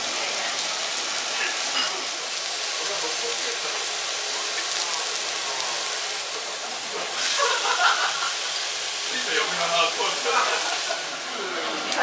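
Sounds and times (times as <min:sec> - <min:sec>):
meat sizzling on a grill pan: 0:00.0 - 0:12.0.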